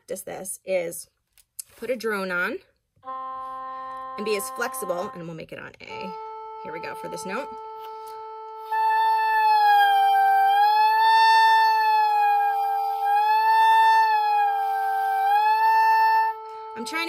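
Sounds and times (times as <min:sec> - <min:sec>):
oboe holding a long note: 0:03.0 - 0:17.0
steady drone tone: 0:03.1 - 0:11.0, 0:11.8 - 0:17.0.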